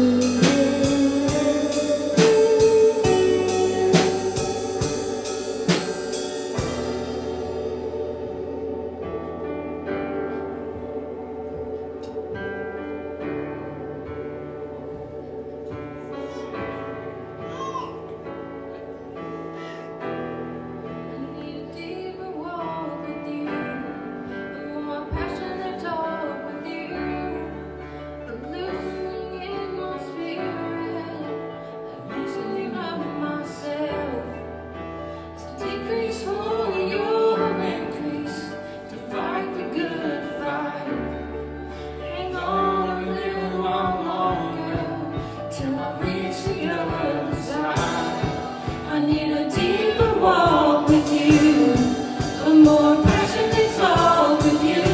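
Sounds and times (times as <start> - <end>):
long held bass notes: 0.0 - 21.1
small band with keyboard: 0.0 - 54.9
women singing worship song: 35.4 - 54.9.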